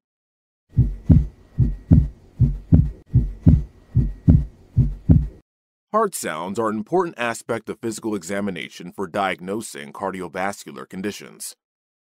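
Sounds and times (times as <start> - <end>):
heartbeat lub-dub: 0.7 - 5.4.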